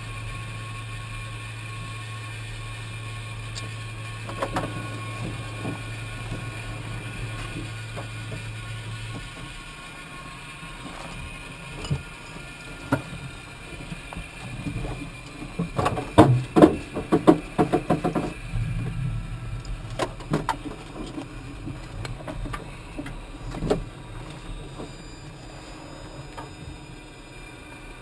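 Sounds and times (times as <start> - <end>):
steady hum: 0.0 - 28.0
gear clicking and knocking: 10.8 - 19.0.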